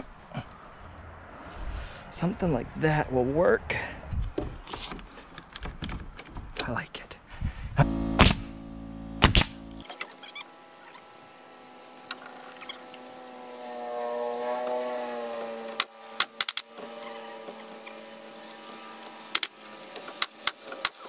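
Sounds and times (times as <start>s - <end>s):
steady hum: 7.8s - 9.9s
nail gun shots: 9.2s - 9.6s.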